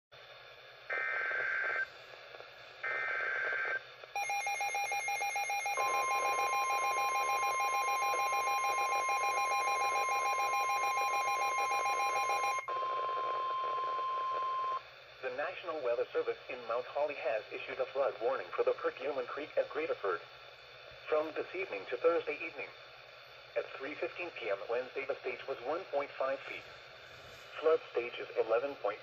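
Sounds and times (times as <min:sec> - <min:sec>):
rapid radio beeping: 0:02.9 - 0:15.4
alert data bursts: 0:04.2 - 0:12.7
steady warning tone: 0:04.2 - 0:14.8.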